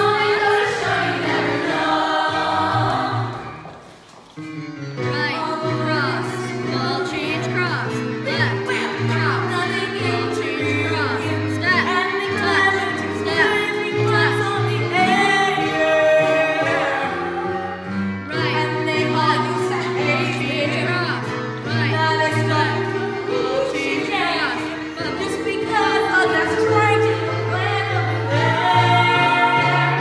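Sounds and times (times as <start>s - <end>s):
musical accompaniment with bass: 0.0s - 30.0s.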